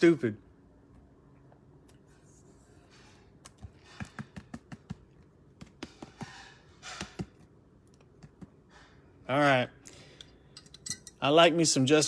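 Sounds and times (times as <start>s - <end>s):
cards tapping and clicking: 3.4s - 6.4s.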